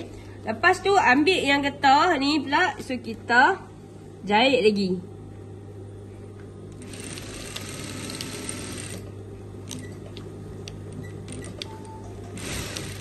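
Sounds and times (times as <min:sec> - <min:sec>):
sewing machine stitching: 0:06.8 - 0:09.0, 0:12.4 - 0:13.0.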